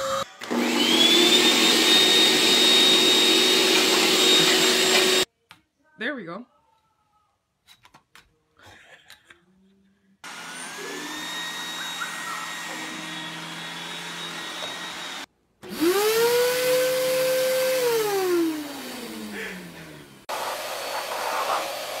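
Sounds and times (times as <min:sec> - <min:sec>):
robot vacuum whirring: 0:00.0 - 0:05.3, 0:10.3 - 0:19.3
vacuum cleaner motor whining: 0:00.0 - 0:05.3, 0:10.3 - 0:22.0.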